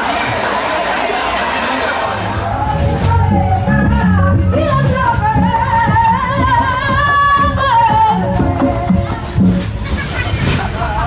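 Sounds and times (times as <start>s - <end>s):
person singing: 2.8s - 9.6s.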